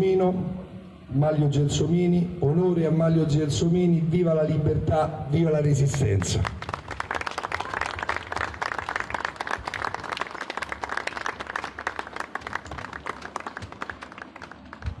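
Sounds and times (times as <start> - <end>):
people applauding: 5.9 - 15.0.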